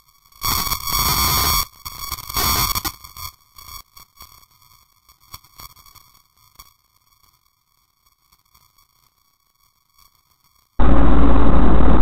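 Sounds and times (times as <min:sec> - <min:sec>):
high electronic tone: 0:10.8 - 0:12.0.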